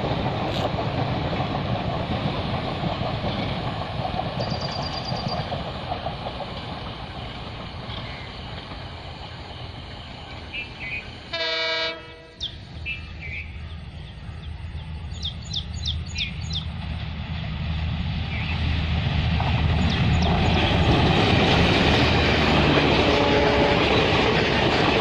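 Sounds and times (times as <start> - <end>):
diesel locomotive rumble: 0.0 - 25.0
passing train rumbling: 0.0 - 25.0
diesel locomotive horn: 11.3 - 12.5, 22.6 - 24.3.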